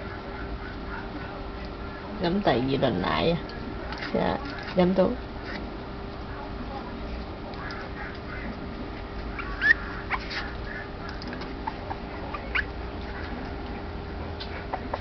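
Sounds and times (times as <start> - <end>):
puppy whimpering: 9.3 - 13.2.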